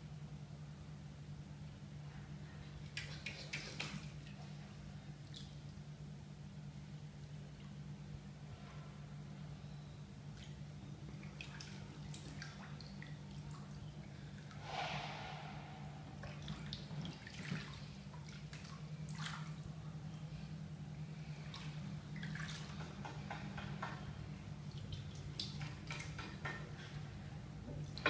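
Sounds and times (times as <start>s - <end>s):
steady low hum: 0.0s - 25.9s
bathwater sloshing and dripping: 2.9s - 5.9s, 10.3s - 14.8s, 16.1s - 20.5s, 21.1s - 26.7s.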